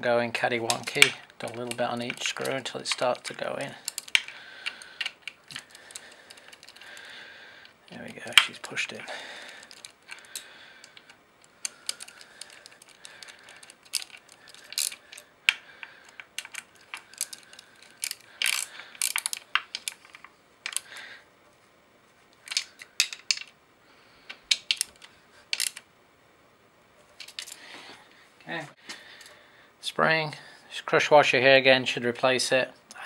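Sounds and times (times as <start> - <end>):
hand ratchet clicking: 0.7 - 7.1, 9.6 - 20.1, 24.3 - 25.8.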